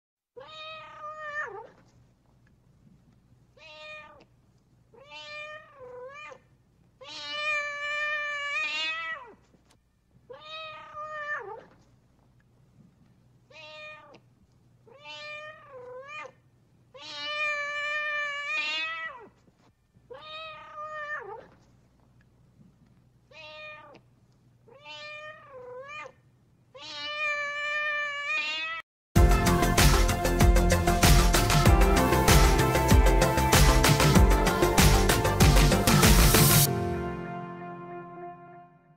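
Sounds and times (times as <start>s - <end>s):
cat meowing: 0.4s - 1.8s, 3.6s - 4.3s, 5.0s - 9.4s, 10.3s - 11.8s, 13.5s - 14.2s, 14.9s - 19.3s, 20.1s - 21.6s, 23.3s - 24.0s, 24.7s - 28.8s.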